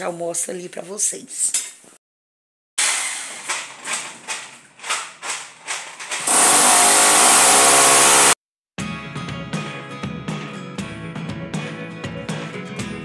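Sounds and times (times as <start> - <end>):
electric drill boring into wall: 6.2 - 8.4.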